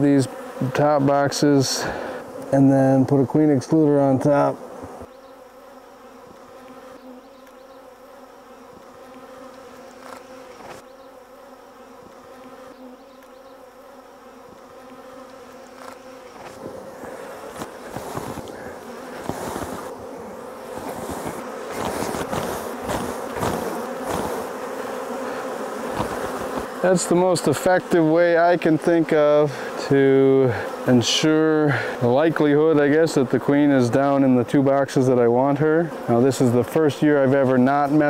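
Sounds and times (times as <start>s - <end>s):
honeybees buzzing: 0.0s - 38.0s
wooden hive boxes knocking: 15.3s - 26.8s.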